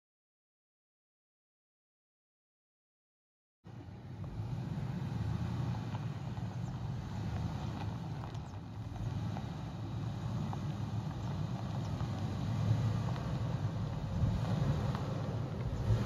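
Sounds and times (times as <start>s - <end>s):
stones ticking under tyres: 3.7s - 16.0s
truck engine rumbling: 3.7s - 16.0s.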